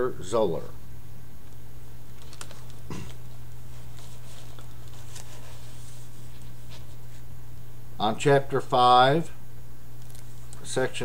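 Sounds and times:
steady low hum: 0:00.0 - 0:11.0
book pages flicking and rustling: 0:02.1 - 0:07.2.

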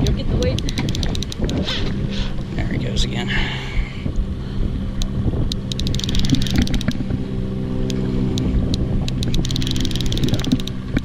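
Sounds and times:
boat motor running: 0:00.0 - 0:11.0
fishing reel clicking rapidly: 0:00.1 - 0:01.9, 0:05.5 - 0:07.0, 0:07.8 - 0:11.0.

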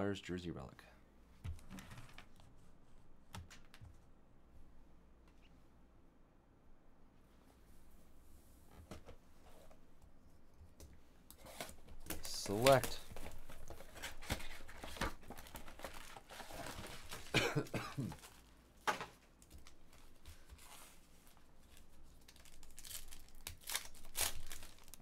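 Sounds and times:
plastic shrink wrap crinkling: 0:12.0 - 0:17.4, 0:19.4 - 0:25.0
foil card pack tearing: 0:22.2 - 0:25.0.

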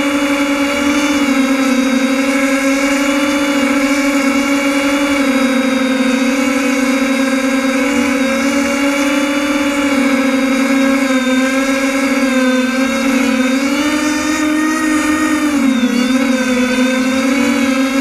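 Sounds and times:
drone propellers buzzing: 0:00.0 - 0:18.0.

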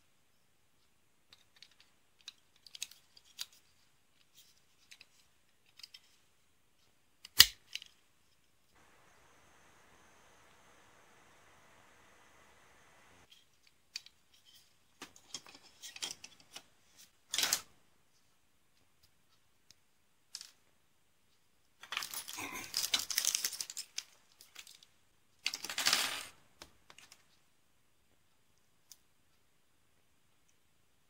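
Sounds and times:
model parts clicking and clattering: 0:01.2 - 0:08.4, 0:13.3 - 0:17.7
plastic rustling: 0:21.9 - 0:24.9.

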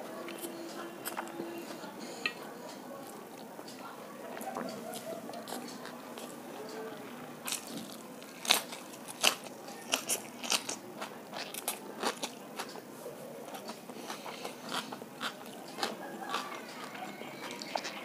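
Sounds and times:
crunching and chewing crisp food: 0:00.0 - 0:18.0.

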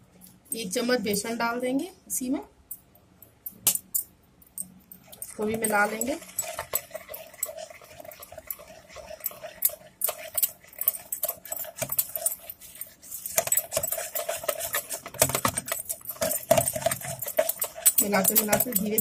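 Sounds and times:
whisk beating batter in bowl: 0:05.0 - 0:19.0.

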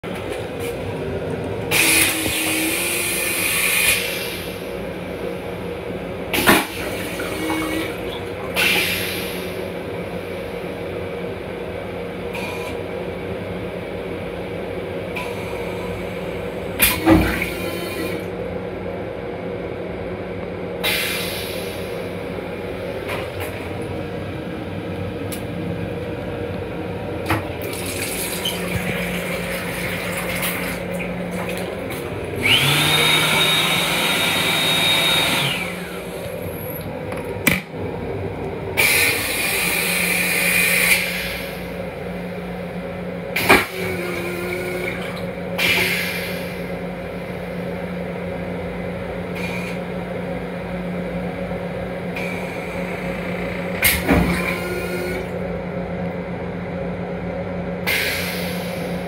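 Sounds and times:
steady hum: 0:00.0 - 0:59.0
toilet flushing rushing water: 0:01.6 - 0:04.5, 0:06.3 - 0:09.6, 0:27.3 - 0:36.9.

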